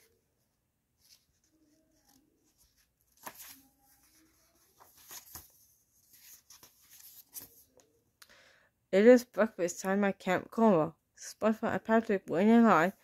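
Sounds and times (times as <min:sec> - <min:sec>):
book pages turning: 0:01.0 - 0:07.9
paper clicks and rustles: 0:01.0 - 0:07.9.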